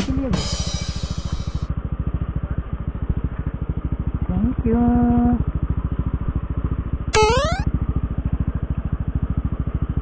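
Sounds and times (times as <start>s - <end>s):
short rising beep: 7.2s - 7.6s.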